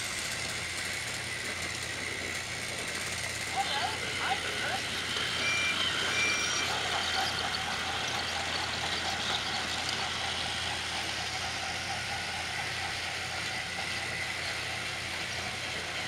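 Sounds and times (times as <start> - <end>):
toy train engines whirring: 0.0 - 16.0
short high beeps: 5.4 - 7.0.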